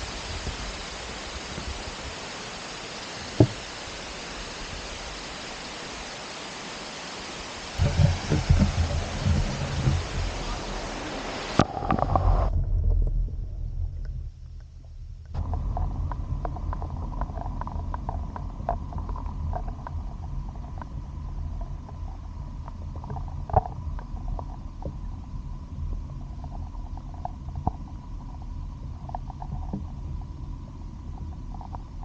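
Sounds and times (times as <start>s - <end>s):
underwater stream rumble: 0.0s - 32.0s
small underwater clicks: 13.9s - 32.0s.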